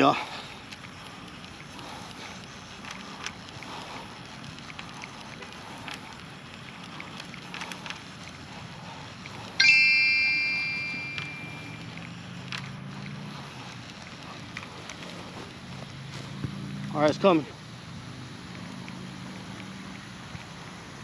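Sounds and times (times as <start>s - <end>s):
outdoor background: 0.0s - 21.0s
faint ticks: 0.3s - 9.6s, 18.4s - 20.7s
low hum: 9.4s - 13.0s
bright metallic ring: 9.6s - 11.9s.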